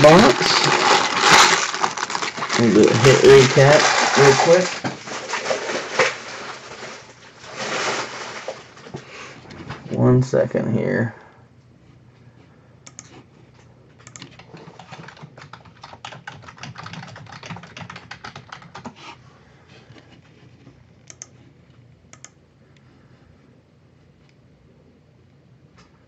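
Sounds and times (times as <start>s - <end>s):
computer keyboard typing: 12.9s - 13.1s, 14.0s - 19.0s, 21.1s - 21.3s.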